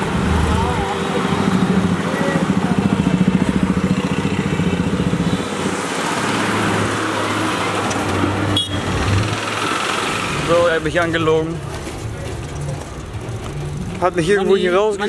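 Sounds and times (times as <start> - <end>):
bus engine hum: 0.0 - 15.0
rapid engine putter: 7.5 - 15.0.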